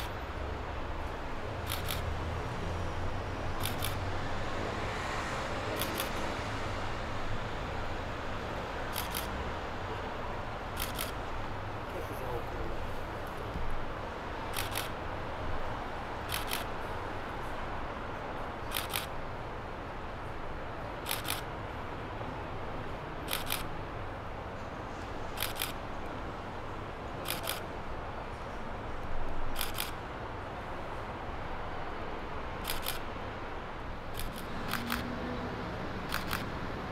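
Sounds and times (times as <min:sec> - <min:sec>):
camera shutter double clicks: 0:01.6 - 0:02.1, 0:03.6 - 0:04.0, 0:05.8 - 0:06.2, 0:08.9 - 0:09.3, 0:10.8 - 0:11.2, 0:14.5 - 0:15.0, 0:16.3 - 0:16.7, 0:18.7 - 0:19.1, 0:21.0 - 0:21.5, 0:23.3 - 0:23.7, 0:25.4 - 0:25.8, 0:27.2 - 0:27.7, 0:29.6 - 0:30.0, 0:32.6 - 0:33.1, 0:34.1 - 0:35.1, 0:36.1 - 0:36.5.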